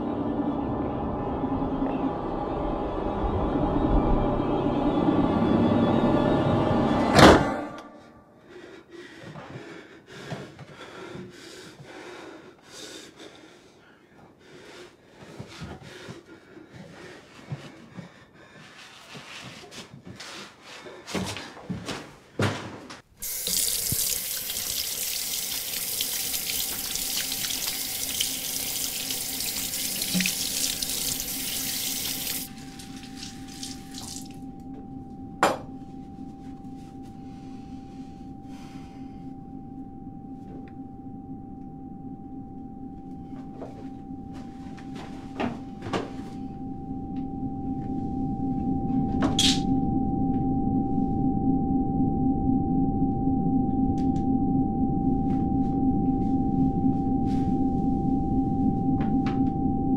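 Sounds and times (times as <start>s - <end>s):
drone with high tone: 0.0s - 8.4s, 25.8s - 59.9s
tap water running: 23.2s - 34.4s.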